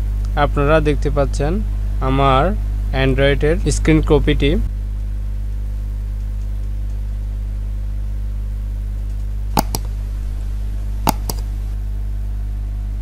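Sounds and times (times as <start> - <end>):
steady low hum: 0.0 - 13.0
computer mouse clicks: 9.6 - 9.9, 11.1 - 11.5.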